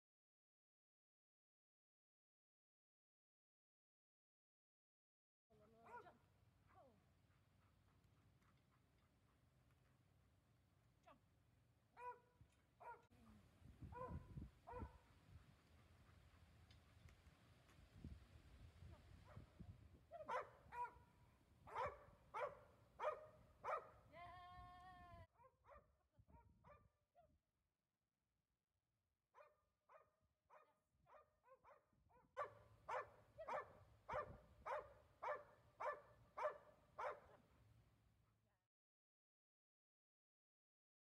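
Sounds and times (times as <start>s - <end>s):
dog barking: 5.8s - 6.9s, 12.0s - 13.1s, 13.9s - 15.0s, 20.1s - 21.1s, 21.7s - 24.0s, 25.4s - 26.9s, 29.4s - 37.4s.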